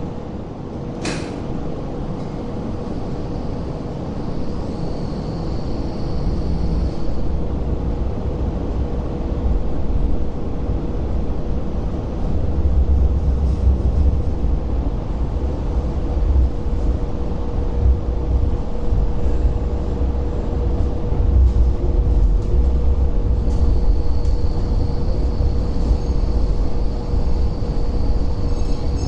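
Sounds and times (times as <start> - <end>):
constant low hum: 0.0 - 29.0
train wheels rumbling on rails: 0.0 - 29.0.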